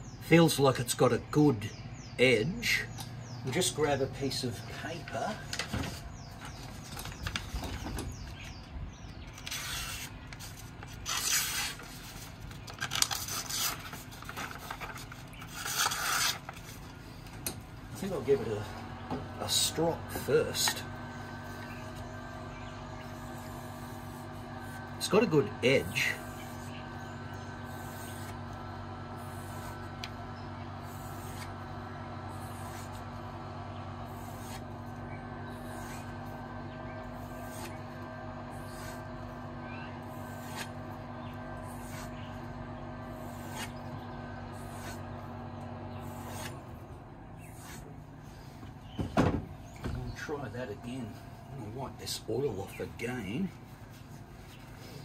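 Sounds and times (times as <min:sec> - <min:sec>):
steady low hum: 0:00.0 - 0:55.0
blade slicing paper: 0:09.3 - 0:16.9, 0:30.8 - 0:31.6, 0:34.1 - 0:34.8, 0:40.1 - 0:40.9, 0:43.1 - 0:43.8, 0:46.0 - 0:46.8
paper rustling: 0:09.3 - 0:17.0.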